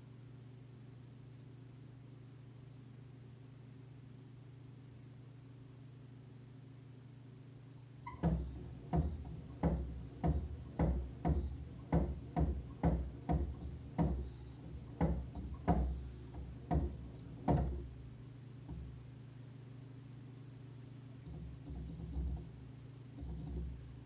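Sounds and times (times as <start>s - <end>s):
electrical hum: 0.0s - 24.0s
motor controller knocking: 8.1s - 18.0s, 21.3s - 22.5s, 23.2s - 23.8s.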